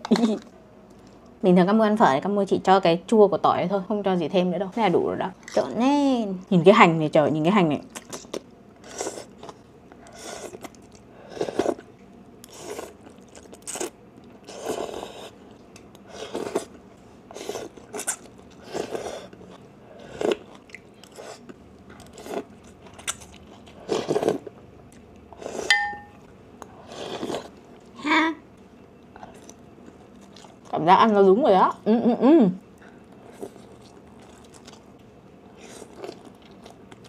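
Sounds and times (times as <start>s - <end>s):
noodles slurped and chewed: 7.9s - 15.4s, 16.0s - 25.7s, 26.6s - 27.9s, 33.2s - 34.9s, 35.5s - 37.0s
utensil clinking on bowl: 25.7s - 26.2s.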